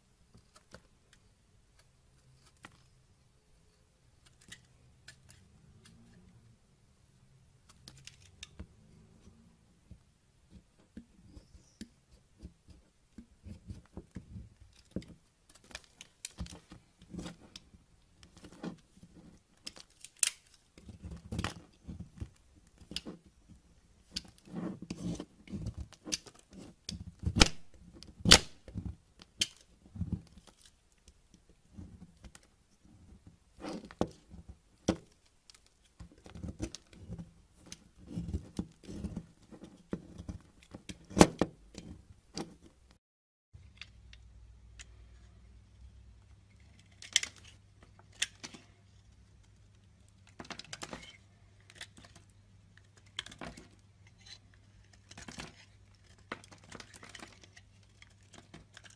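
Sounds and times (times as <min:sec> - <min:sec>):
knife scraping soap: 0:24.2 - 0:27.4.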